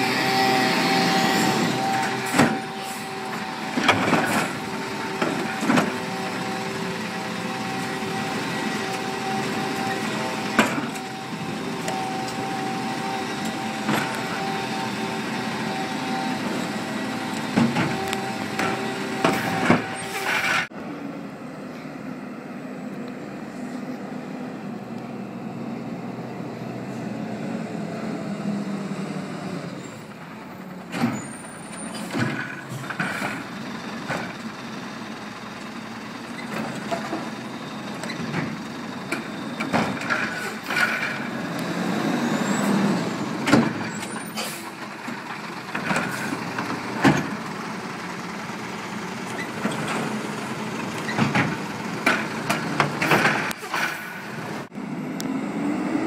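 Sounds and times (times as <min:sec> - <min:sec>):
distant truck running: 0:00.0 - 0:56.0
garbage truck engine and hydraulic whine: 0:00.0 - 0:56.0
sharp knocks and bangs of carts: 0:17.4 - 0:20.7, 0:36.3 - 0:41.9, 0:42.6 - 0:47.7, 0:49.2 - 0:54.7.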